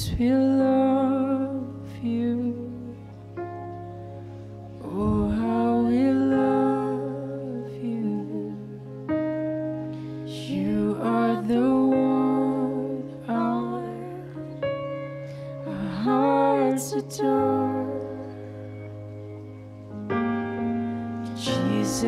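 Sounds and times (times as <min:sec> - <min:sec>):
held instrumental chords: 0:00.2 - 0:22.0
man singing into a microphone: 0:21.4 - 0:22.0.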